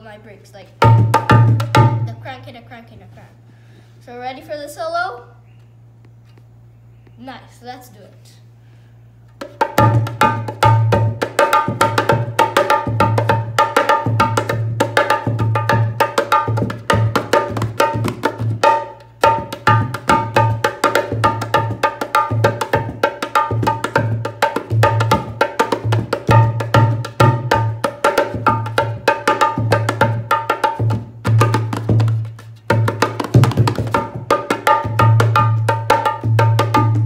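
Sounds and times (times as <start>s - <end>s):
hand drum playing: 0.8s - 2.2s, 9.4s - 37.0s.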